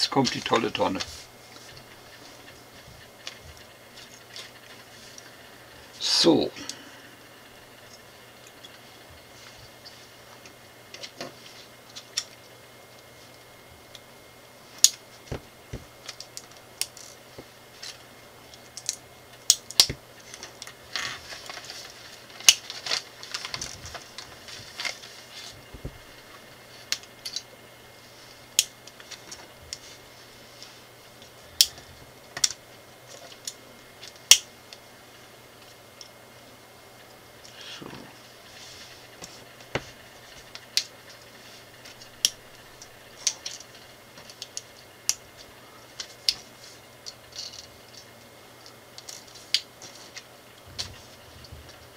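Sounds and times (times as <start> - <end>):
paper sheets rustling: 21.1 - 26.9.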